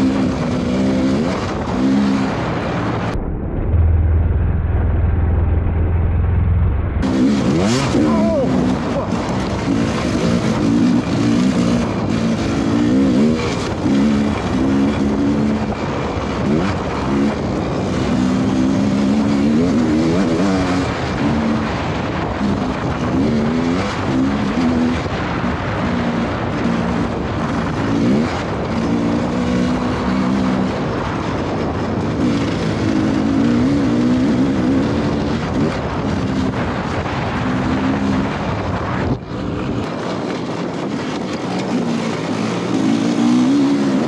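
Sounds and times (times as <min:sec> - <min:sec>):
dirt bike engine revving: 0:00.0 - 0:03.2, 0:07.0 - 0:44.0
muffled low hum: 0:02.4 - 0:07.5.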